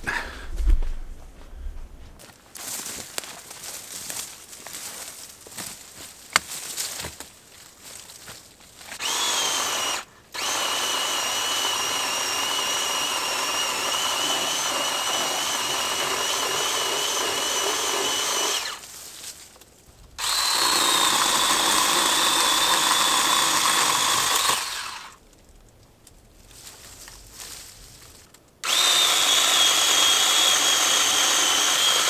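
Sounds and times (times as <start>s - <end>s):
electric chainsaw cutting wood: 9.0s - 18.8s, 20.2s - 25.2s, 28.6s - 32.0s.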